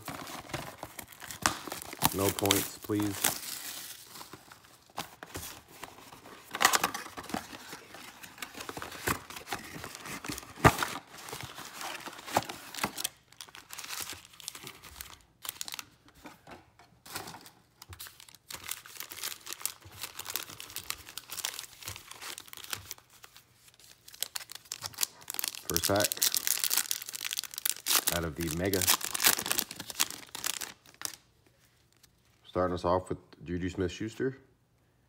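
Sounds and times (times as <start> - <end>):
plastic wrap and cardboard tearing: 0.0 - 4.4, 24.0 - 31.2
foil packs crinkling: 0.0 - 15.9, 17.1 - 31.2.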